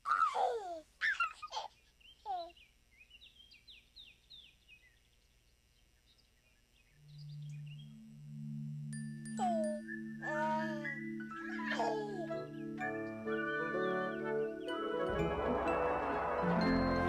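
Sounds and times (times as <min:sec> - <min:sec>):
birds whistling and chirping: 0:09.3 - 0:10.2, 0:10.8 - 0:14.9.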